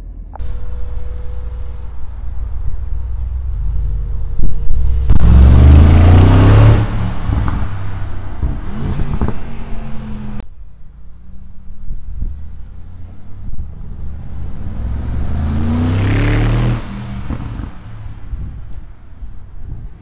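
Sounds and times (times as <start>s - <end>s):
car engine revving: 0.4s - 18.8s.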